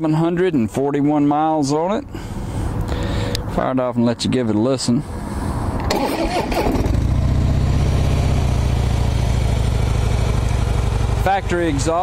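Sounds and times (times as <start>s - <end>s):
motorcycle engine cranking: 5.8s - 7.2s
motorcycle engine idling: 7.0s - 12.0s.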